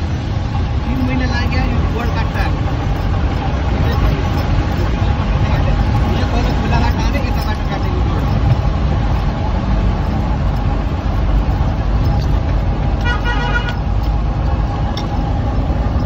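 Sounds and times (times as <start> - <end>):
vehicle engine and road rumble: 0.0 - 16.0
car horn: 13.0 - 13.9.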